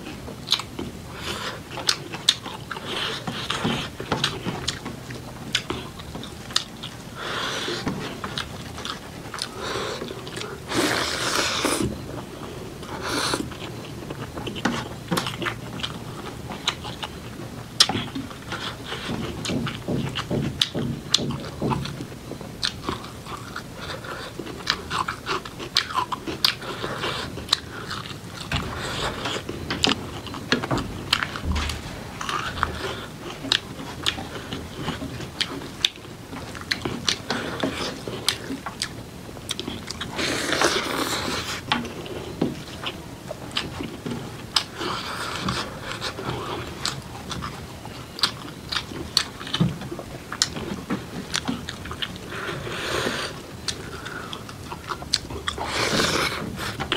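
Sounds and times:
wet chewing and lip smacks: 0.1s - 56.9s
slurping noise: 9.4s - 12.0s.

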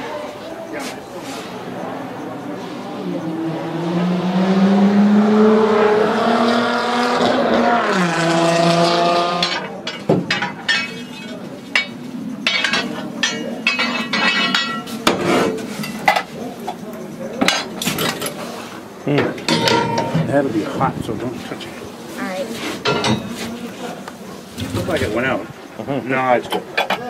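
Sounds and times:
metallic clanks and knocks: 9.4s - 16.3s, 19.2s - 20.4s, 22.8s - 23.4s.

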